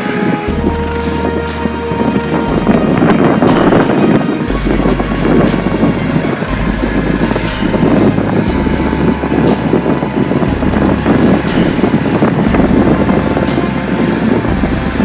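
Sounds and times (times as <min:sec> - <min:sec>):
helicopter rotor and engine noise: 0:00.0 - 0:15.0.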